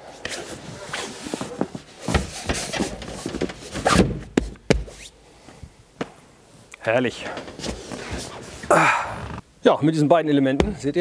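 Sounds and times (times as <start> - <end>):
cushions rustling and rubbing: 0.0 - 5.6, 6.4 - 9.4.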